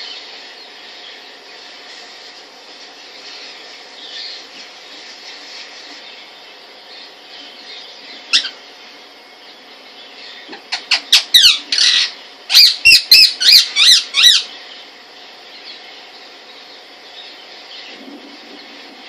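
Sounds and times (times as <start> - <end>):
parakeet squawking: 8.3 - 8.6, 10.5 - 14.5.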